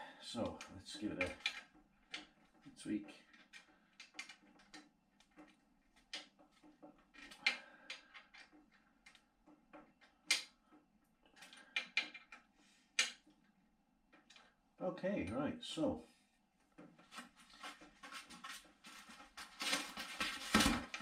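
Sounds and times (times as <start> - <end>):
metal parts clicking and rubbing: 1.2 - 9.2.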